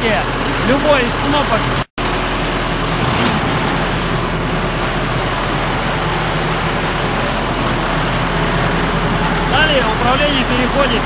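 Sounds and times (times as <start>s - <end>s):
diesel engine running: 0.0s - 11.0s.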